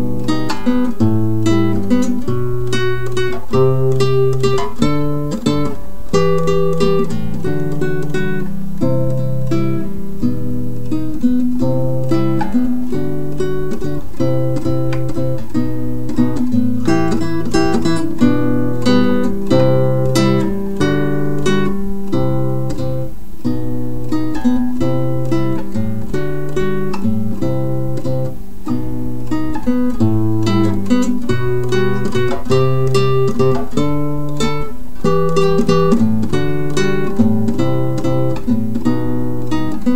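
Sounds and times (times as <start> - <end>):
acoustic guitar music: 0.0 - 39.9.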